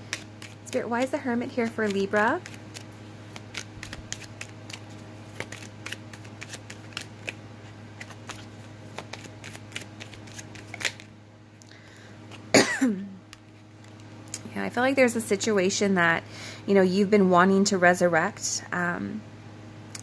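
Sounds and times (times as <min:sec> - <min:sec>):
cards being shuffled: 0:00.0 - 0:11.1
faint steady hum: 0:00.0 - 0:20.0.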